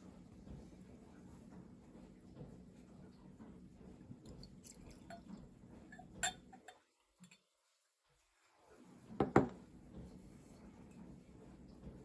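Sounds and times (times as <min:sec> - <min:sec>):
glass clinking: 0:05.9 - 0:07.5.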